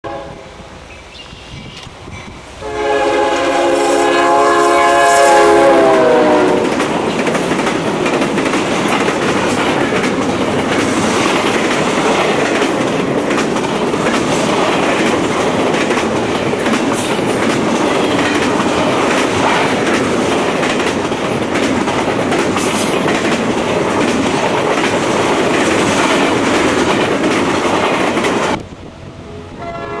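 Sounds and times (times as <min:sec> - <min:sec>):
locomotive air horn: 0:00.0 - 0:00.5, 0:02.6 - 0:06.7, 0:29.3 - 0:30.0.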